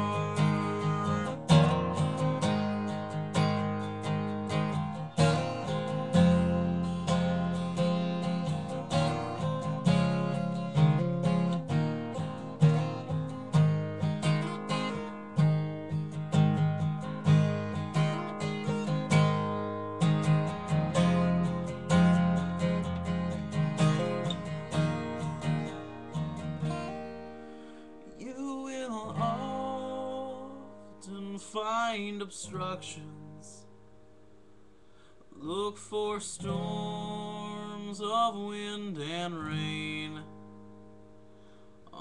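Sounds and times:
person singing softly: 0:00.0 - 0:02.3, 0:28.1 - 0:33.7
acoustic guitar strummed: 0:00.0 - 0:42.0.

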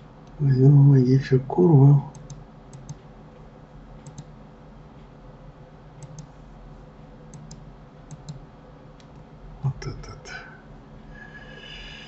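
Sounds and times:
faint steady background hum: 0:00.0 - 0:12.0
computer mouse clicking: 0:02.1 - 0:03.1, 0:04.0 - 0:04.3, 0:06.0 - 0:06.3, 0:07.3 - 0:08.4, 0:09.0 - 0:09.2.

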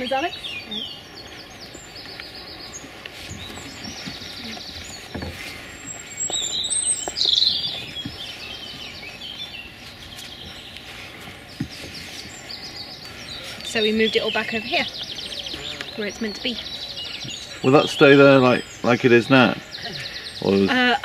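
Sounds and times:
songbirds singing: 0:00.0 - 0:21.0
soft thumps: 0:03.4 - 0:05.6.

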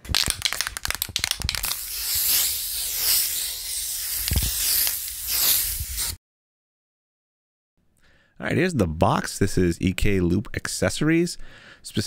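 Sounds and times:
spray can clicks: 0:00.4 - 0:06.2
spray can hissing: 0:00.6 - 0:06.2.

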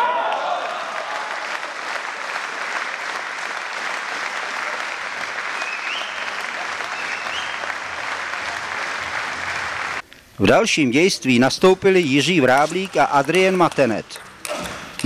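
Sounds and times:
spectators applauding: 0:00.0 - 0:10.0.

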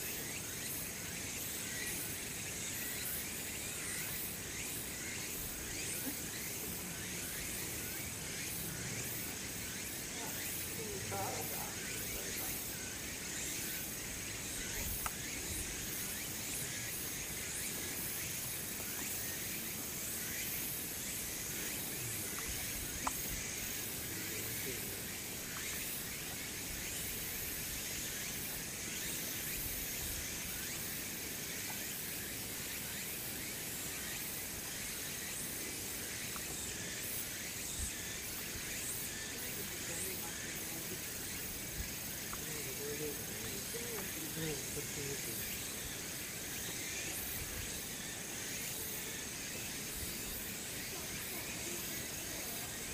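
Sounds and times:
high outdoor hiss: 0:00.0 - 0:52.9.

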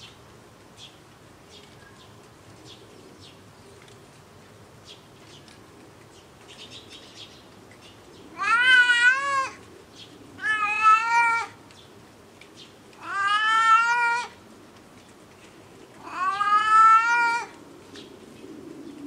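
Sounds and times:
cat meowing: 0:08.4 - 0:09.6, 0:10.4 - 0:11.6, 0:13.0 - 0:14.4, 0:16.0 - 0:17.6.

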